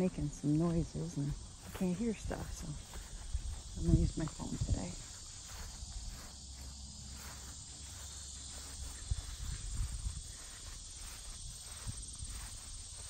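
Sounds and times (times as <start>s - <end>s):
insect chorus: 0.0s - 13.0s.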